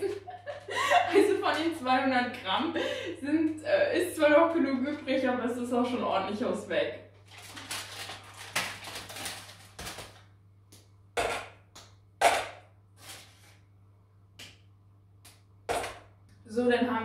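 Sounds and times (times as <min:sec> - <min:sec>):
foil crinkling: 0:07.2 - 0:10.3.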